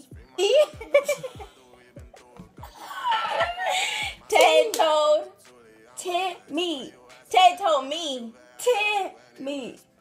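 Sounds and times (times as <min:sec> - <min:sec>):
hip-hop beat with deep kicks: 0:00.0 - 0:06.0, 0:06.9 - 0:07.4
young women laughing: 0:00.4 - 0:01.6, 0:02.8 - 0:04.2.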